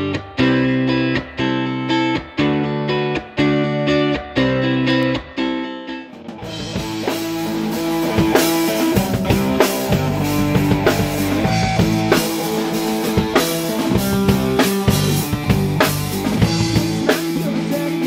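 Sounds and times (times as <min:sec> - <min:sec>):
bass guitar: 0:00.0 - 0:18.0
drum kit beat: 0:00.0 - 0:18.0
electric guitar: 0:00.0 - 0:18.0.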